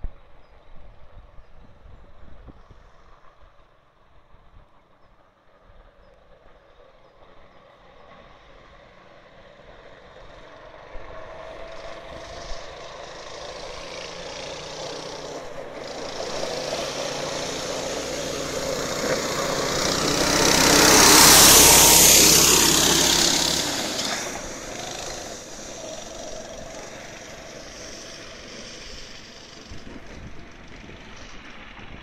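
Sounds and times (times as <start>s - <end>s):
snow sled engine running: 6.4s - 32.0s
hiss of passing sled: 10.1s - 32.0s.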